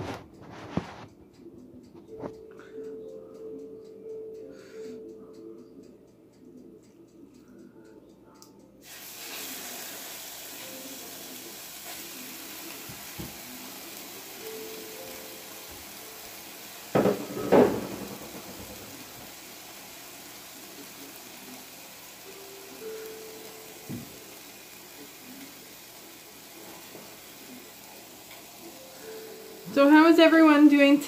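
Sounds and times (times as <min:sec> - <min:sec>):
meat sizzling in a frying pan: 0:08.8 - 0:31.0.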